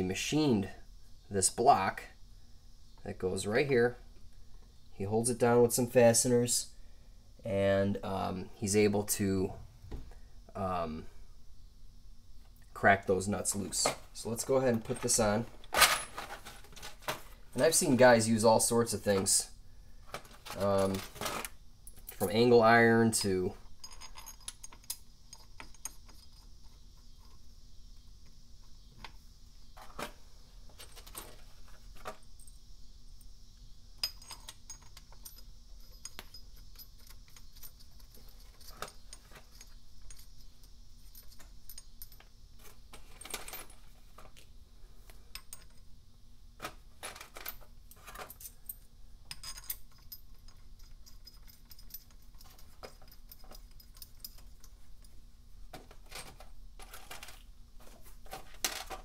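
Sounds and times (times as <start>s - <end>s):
faint steady hum: 0.0s - 59.0s
metal bolts clinking: 13.5s - 18.4s, 20.5s - 27.3s, 34.0s - 43.8s, 47.0s - 55.2s.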